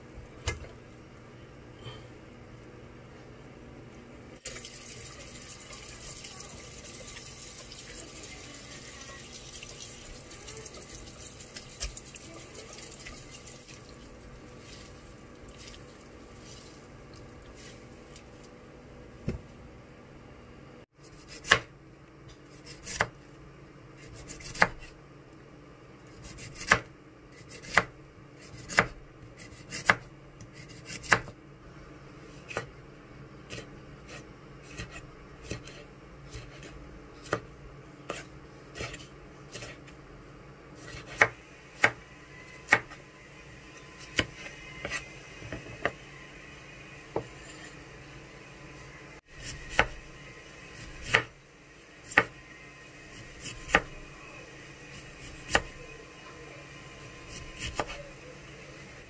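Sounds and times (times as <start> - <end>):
knife chopping on cutting board: 21.2 - 21.7, 22.6 - 23.1, 24.0 - 24.9, 26.2 - 31.3, 32.4 - 32.7, 33.5 - 39.9, 40.8 - 42.0, 42.7 - 43.0, 49.4 - 50.0, 51.0 - 51.3, 52.1 - 52.3, 53.2 - 53.9, 55.2 - 55.7.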